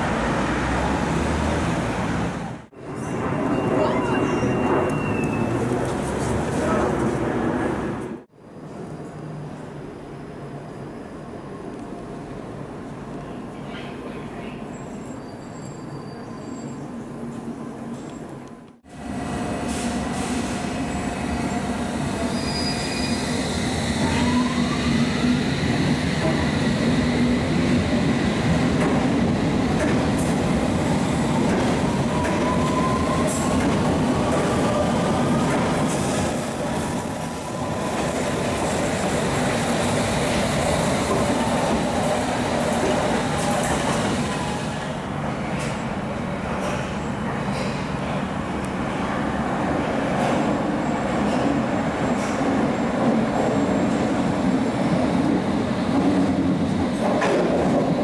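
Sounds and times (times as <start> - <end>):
high wheel squeal: 14.7 - 16.9, 22.3 - 24.9
train wheels rumbling on rail: 16.5 - 58.0.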